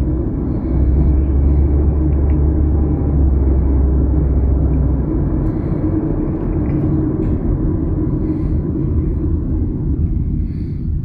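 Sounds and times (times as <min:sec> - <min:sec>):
car road and engine rumble: 0:00.0 - 0:11.0
deep low drone: 0:00.0 - 0:11.0.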